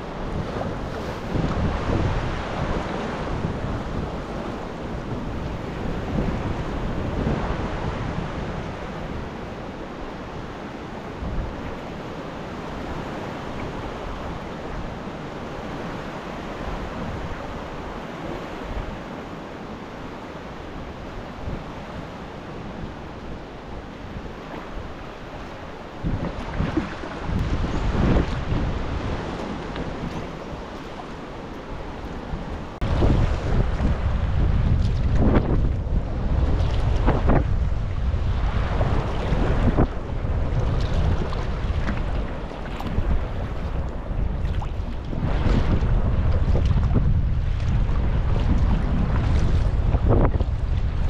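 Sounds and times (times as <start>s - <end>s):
sea waves surging against rocks: 0.0s - 51.0s.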